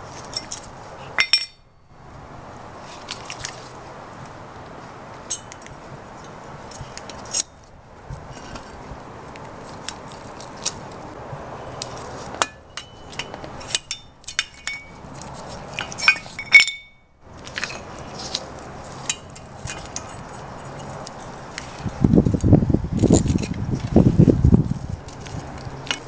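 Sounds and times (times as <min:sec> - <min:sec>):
metal clicks of brake parts: 0:11.8 - 0:18.4.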